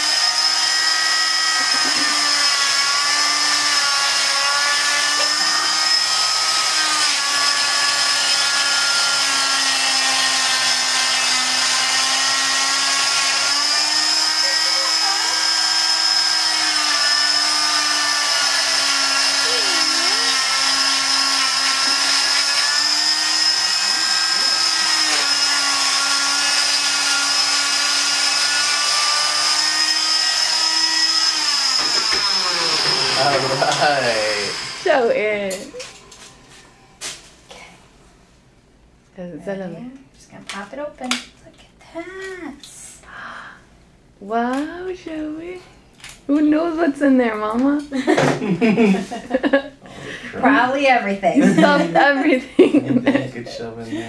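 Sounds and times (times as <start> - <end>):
cast saw motor whine: 0.0 - 37.0.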